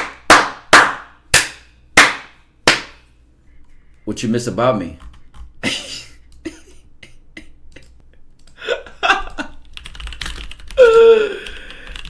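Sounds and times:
man's stifled laughter: 5.6s - 8.0s, 8.6s - 9.6s.

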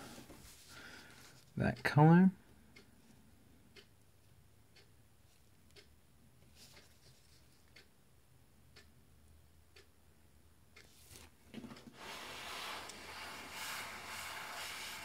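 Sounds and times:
faint ticks: 5.6s - 7.9s.

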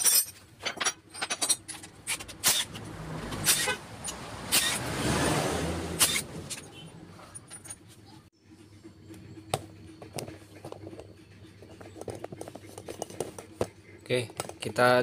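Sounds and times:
metal tools clinking: 0.0s - 2.8s, 6.0s - 8.2s.

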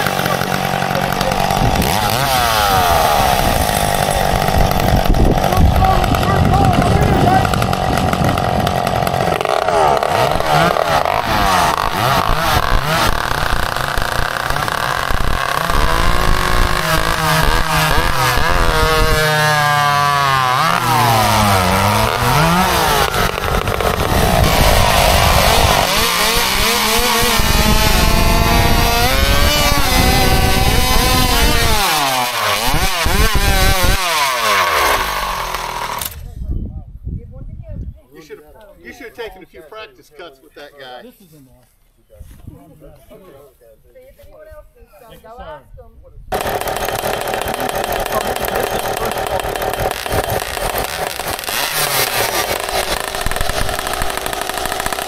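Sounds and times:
racing chainsaws cutting timber: 0.0s - 36.3s, 46.3s - 55.0s.

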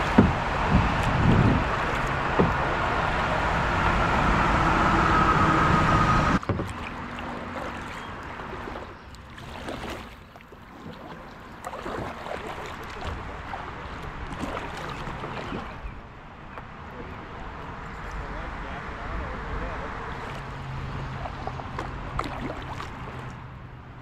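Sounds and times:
paddle splashes and drips: 0.0s - 4.2s, 6.4s - 16.9s, 20.0s - 23.6s
river water rushing: 0.0s - 15.9s, 19.8s - 23.7s.

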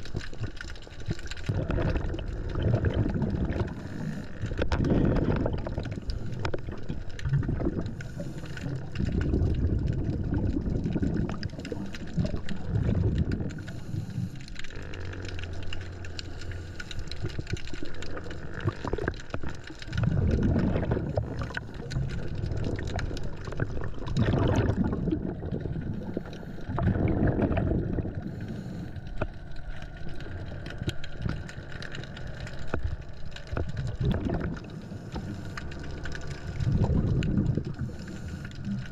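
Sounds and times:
faint crackle of clicks: 0.0s - 38.9s
air bubbling underwater: 1.5s - 8.0s, 8.6s - 13.8s, 17.2s - 28.6s, 33.5s - 35.4s, 36.5s - 38.0s.

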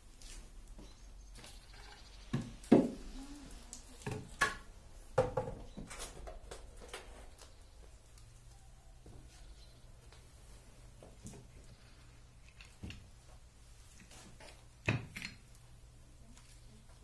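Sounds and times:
knocks and thumps: 5.2s - 6.3s.

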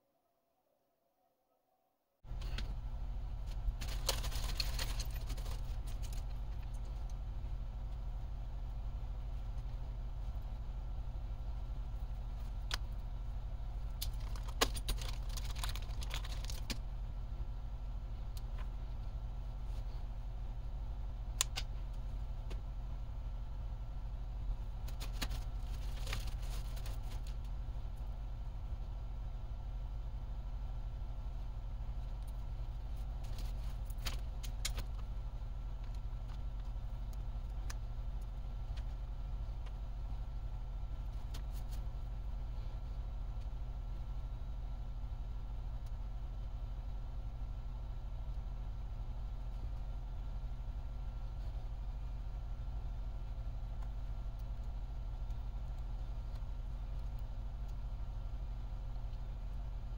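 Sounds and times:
steady low hum: 2.2s - 59.9s
small plastic clicks and crackles: 3.8s - 7.2s, 13.9s - 16.8s, 24.8s - 27.5s, 33.0s - 35.1s.

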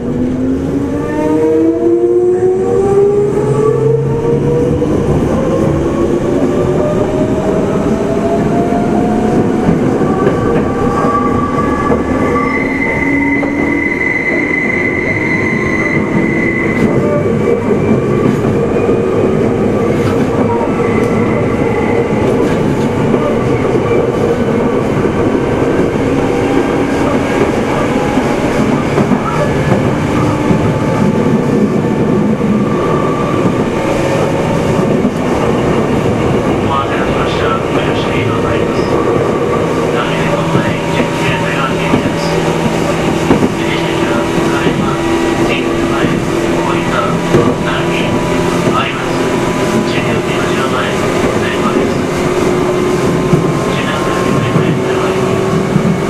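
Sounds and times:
train running noise: 0.0s - 56.0s
high wheel squeal: 12.1s - 17.2s.

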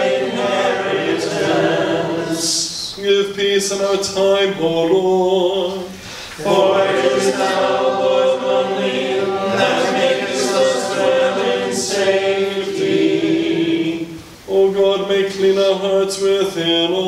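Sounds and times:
choir singing in harmony: 0.0s - 2.9s, 6.4s - 15.3s.

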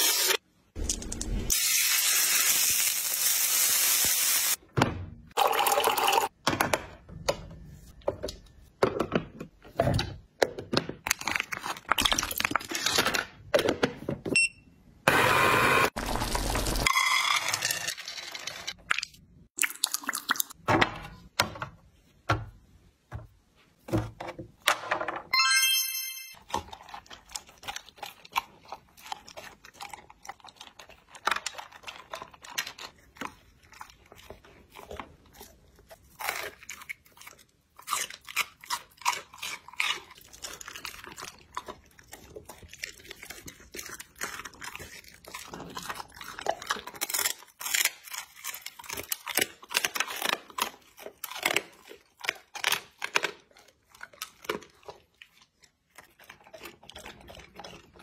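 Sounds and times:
dog crunching food: 26.4s - 58.0s.

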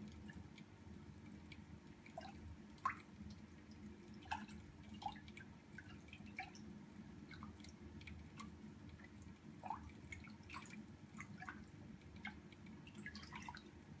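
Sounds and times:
faint low hum: 0.0s - 14.0s
water drips and plinks: 0.0s - 14.0s.

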